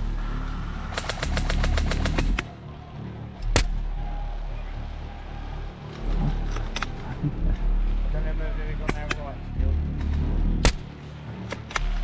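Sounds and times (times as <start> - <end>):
rapid airsoft shots: 0.9 - 2.4.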